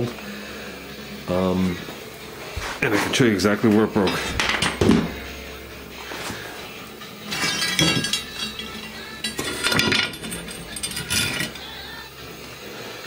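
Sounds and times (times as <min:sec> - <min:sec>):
steel leaves clinking and scraping: 0:02.8 - 0:12.1.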